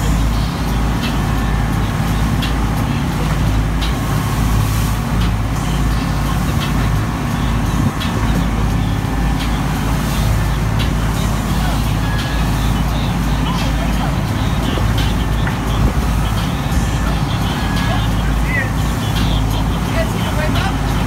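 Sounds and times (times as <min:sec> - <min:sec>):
boat engines droning: 0:00.0 - 0:21.0
churning water: 0:00.0 - 0:21.0
wind rushing: 0:12.0 - 0:21.0.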